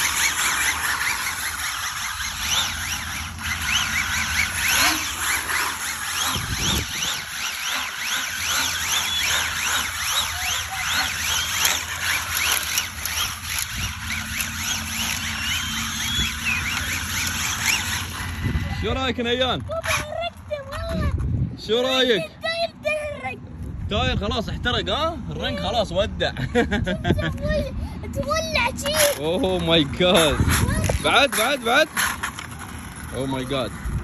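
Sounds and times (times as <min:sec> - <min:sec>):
toy car motor whine: 0:00.0 - 0:21.0, 0:28.2 - 0:34.0.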